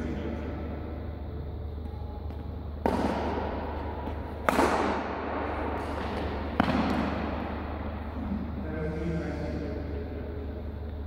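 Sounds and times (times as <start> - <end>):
rackets hitting shuttlecock: 1.8 - 8.5.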